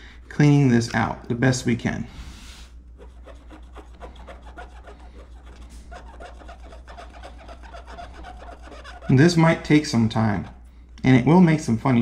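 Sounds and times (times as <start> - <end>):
scratchy rubbing on glass: 2.5 - 10.7.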